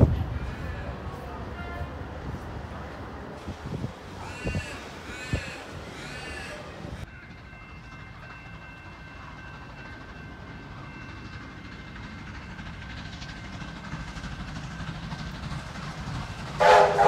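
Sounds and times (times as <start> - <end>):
distant steam locomotive rumble: 0.0 - 17.0.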